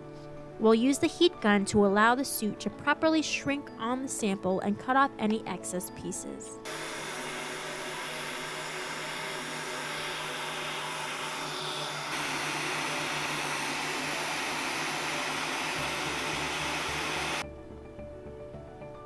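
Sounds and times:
heat gun blowing air: 6.7s - 17.4s.

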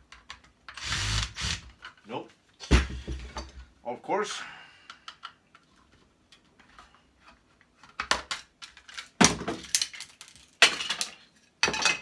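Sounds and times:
plastic case cracking apart: 8.0s - 11.0s.

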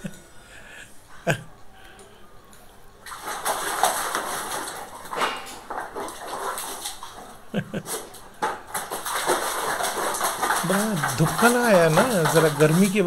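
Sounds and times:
water splashing in a plastic bucket: 3.0s - 13.0s.

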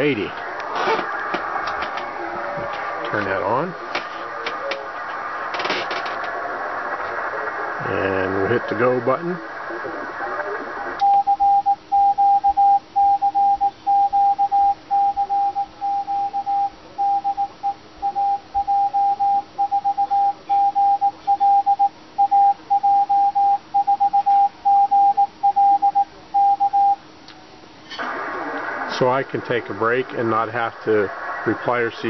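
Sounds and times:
morse code tone: 11.0s - 27.0s.

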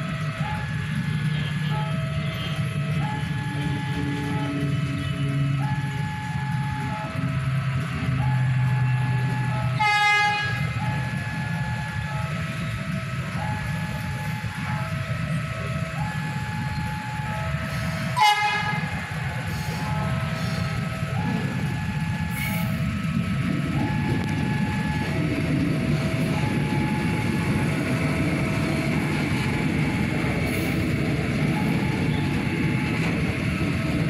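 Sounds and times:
low rumble of train: 0.0s - 34.0s
two-tone warning signal: 0.0s - 34.0s
train horn blasts: 8.9s - 12.8s, 17.4s - 23.2s.

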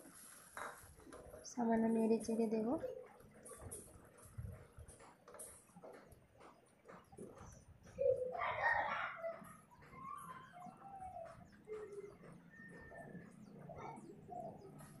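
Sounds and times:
birds calling: 0.2s - 15.0s.

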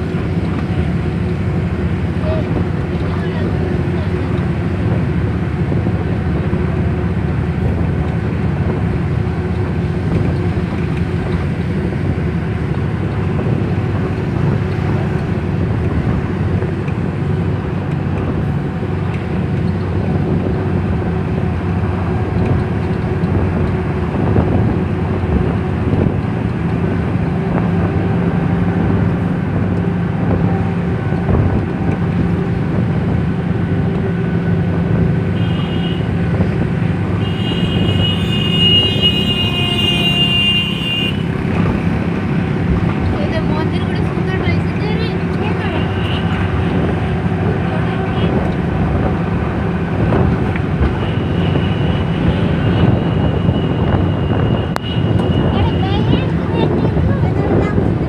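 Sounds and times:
vehicle engine and road noise: 0.0s - 58.0s.

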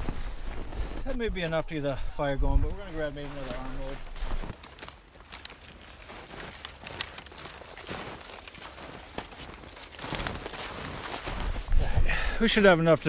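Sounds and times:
footsteps crunching in snow: 0.0s - 1.7s, 2.5s - 12.0s
dry branches snapping: 2.6s - 11.7s.

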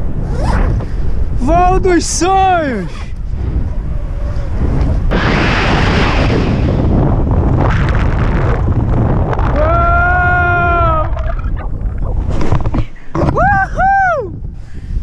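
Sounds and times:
wind buffeting microphone: 0.0s - 15.0s
parachute opening rush: 0.2s - 1.4s, 2.8s - 13.3s
person yelling: 9.6s - 11.2s.

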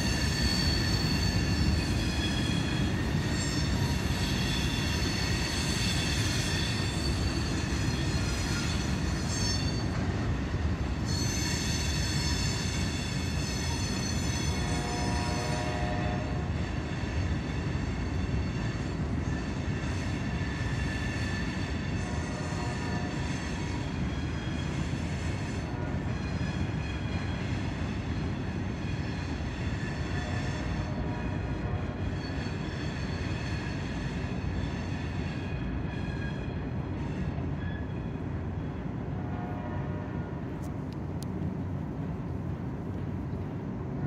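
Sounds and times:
wheel squeal and grinding: 0.0s - 10.2s, 11.0s - 14.7s
freight train rumbling past: 0.0s - 44.0s.

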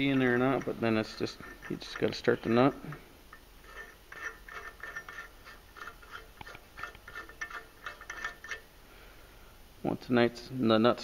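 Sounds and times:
light metallic ticks of spinning nut: 0.0s - 8.7s.

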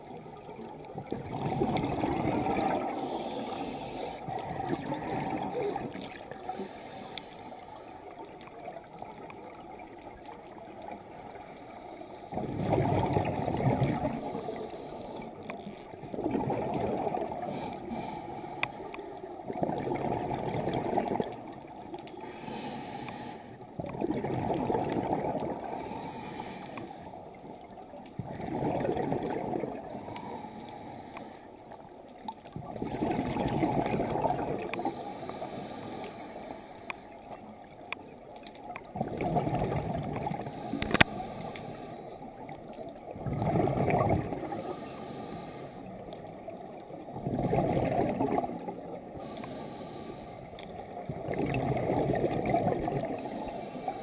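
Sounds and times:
diver exhaling bubbles: 1.0s - 3.4s, 4.3s - 6.2s, 12.3s - 14.5s, 16.1s - 17.8s, 19.5s - 21.4s, 23.8s - 25.8s, 28.2s - 29.9s, 32.6s - 34.8s, 39.0s - 41.1s, 43.2s - 44.9s, 47.1s - 49.4s, 51.1s - 54.0s
regulator inhalations: 44.6s - 46.0s, 49.2s - 50.6s.

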